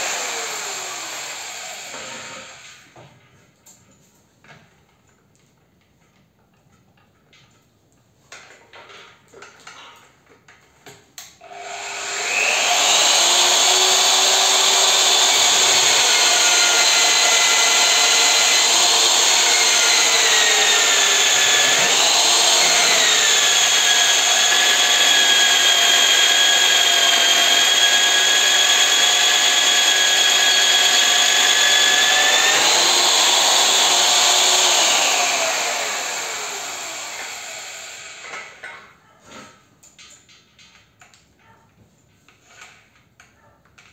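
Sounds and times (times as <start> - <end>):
drill press motor whining: 0.0 - 2.6, 11.4 - 38.4
hole cutter boring through steel: 0.0 - 2.7, 11.4 - 38.6.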